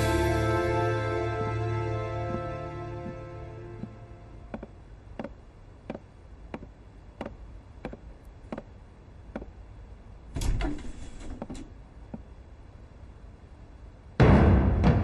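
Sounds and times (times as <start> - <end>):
footsteps on wooden floor: 2.2 - 8.7
wooden door unlatching and opening: 10.4 - 11.7.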